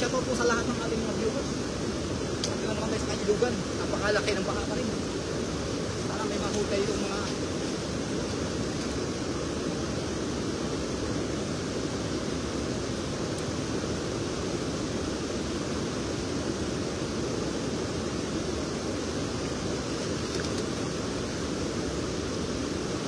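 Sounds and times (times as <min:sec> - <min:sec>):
river roaring over a weir: 0:00.0 - 0:23.0.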